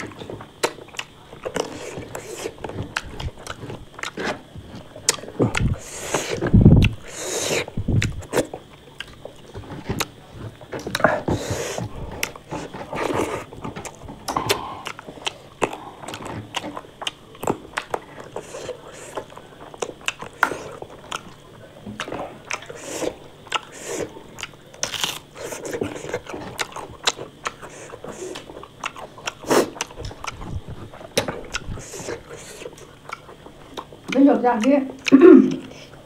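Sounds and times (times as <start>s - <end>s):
person chewing crunchy food: 0.0s - 36.0s.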